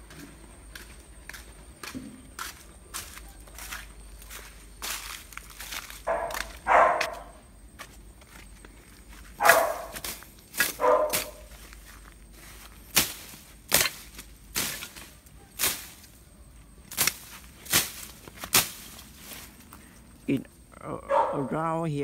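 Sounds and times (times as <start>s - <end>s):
dog barking: 6.0s - 7.4s, 9.4s - 10.0s, 10.8s - 11.5s, 21.0s - 21.6s
machete swishing through grass: 9.4s - 16.2s, 16.9s - 19.6s.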